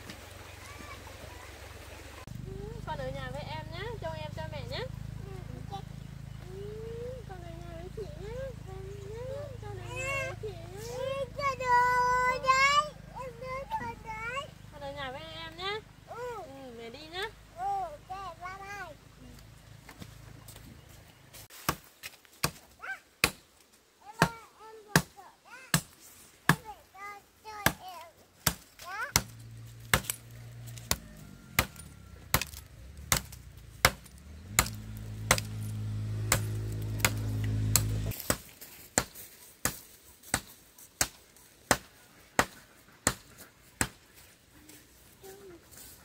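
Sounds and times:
engine humming: 0.0s - 21.5s, 29.1s - 38.2s
birds chirping: 0.4s - 21.5s, 29.3s - 38.2s
blade chopping: 28.4s - 39.1s.

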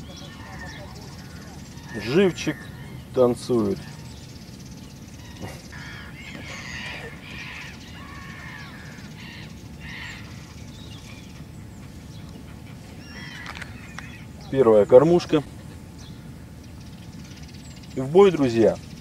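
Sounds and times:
birds calling: 0.0s - 19.0s
faint outdoor background: 0.0s - 19.0s.

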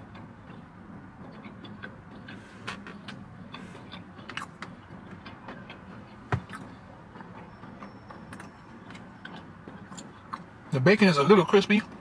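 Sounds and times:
person chewing: 0.1s - 7.4s, 8.3s - 10.5s.

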